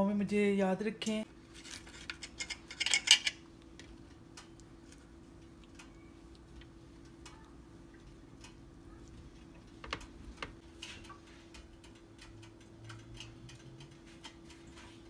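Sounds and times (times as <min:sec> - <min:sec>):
small clicks and taps: 0:03.8 - 0:14.9.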